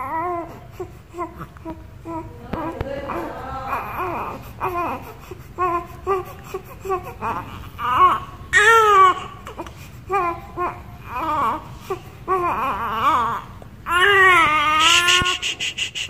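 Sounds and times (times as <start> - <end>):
baby crying: 2.1 - 11.7, 12.3 - 15.8
baby fussing: 13.9 - 16.0.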